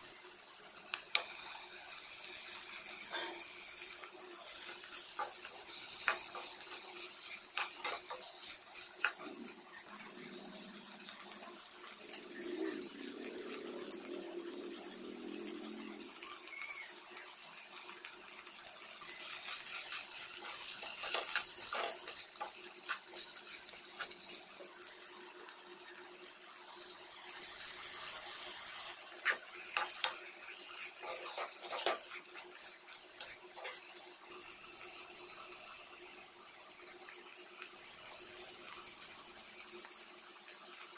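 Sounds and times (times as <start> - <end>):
spoon scraping in a pan: 2.4 - 11.3, 19.0 - 25.0, 27.4 - 35.2
steady hiss: 19.0 - 40.9.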